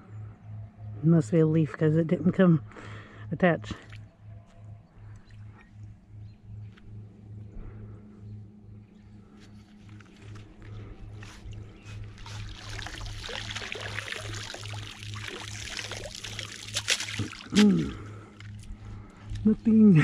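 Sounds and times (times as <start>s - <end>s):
low pulsing hum: 0.0s - 20.0s
water splashing and streaming: 11.3s - 18.7s.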